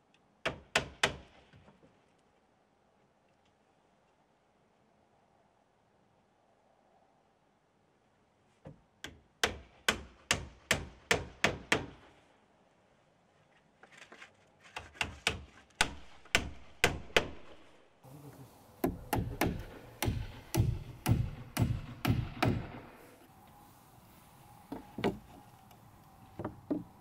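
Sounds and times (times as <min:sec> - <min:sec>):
hammer driving nails into wood: 0:18.8 - 0:22.9.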